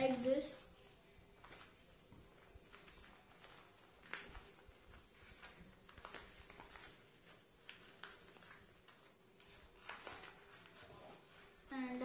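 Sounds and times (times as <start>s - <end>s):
paper crinkling: 0.0s - 12.0s
paper folding clicks: 2.4s - 10.9s.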